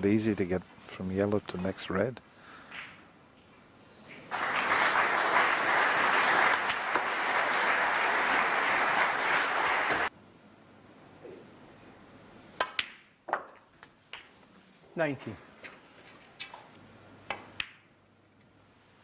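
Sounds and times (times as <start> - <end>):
audience applauding: 4.3 - 10.1.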